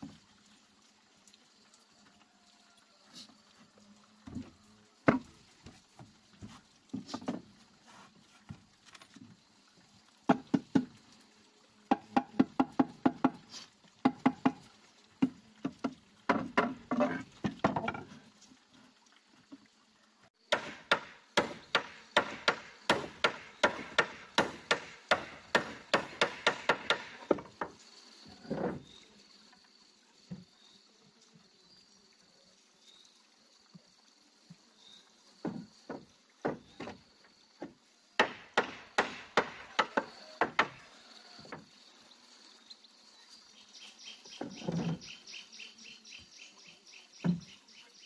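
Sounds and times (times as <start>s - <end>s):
hammer driving nails into wood: 20.5s - 27.5s, 38.2s - 40.8s.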